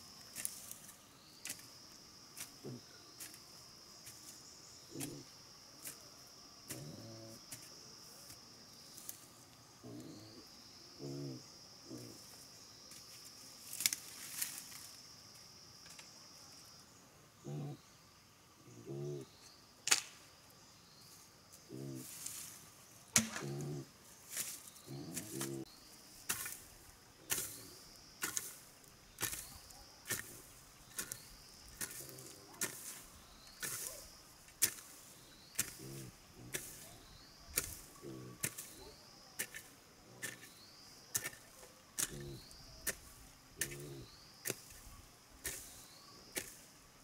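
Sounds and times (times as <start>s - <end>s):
doves cooing: 4.9s - 5.3s, 6.7s - 7.5s, 9.8s - 12.4s, 17.4s - 17.8s, 18.6s - 19.3s, 21.6s - 22.3s, 23.2s - 24.0s, 24.8s - 25.7s, 31.8s - 32.9s, 35.5s - 40.4s, 41.2s - 43.0s, 43.6s - 44.6s.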